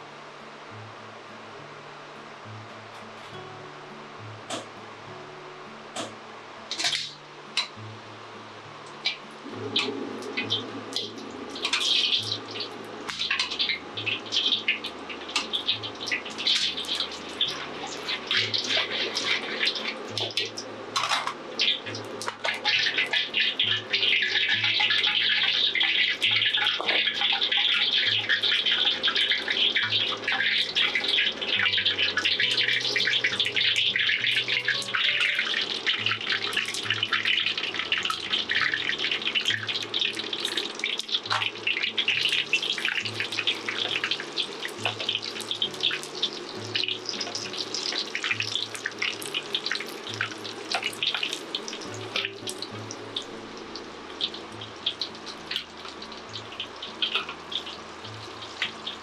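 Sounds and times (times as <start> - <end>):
faint background music: 0.0 - 59.0
meat deep-frying in hot oil: 5.9 - 7.9, 8.7 - 59.0.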